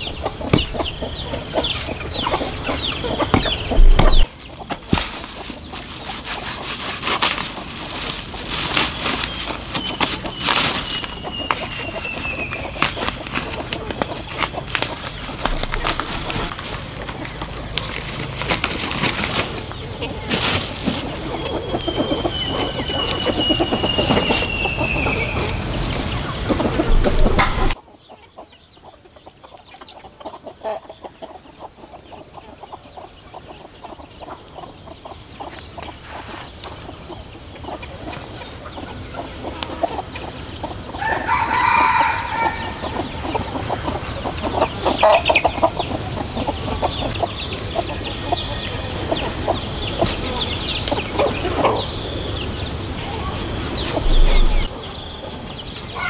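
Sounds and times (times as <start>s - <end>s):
background noise: 0.0s - 56.0s
chickens calling: 0.0s - 56.0s
hands crumbling and patting earth: 3.2s - 19.7s.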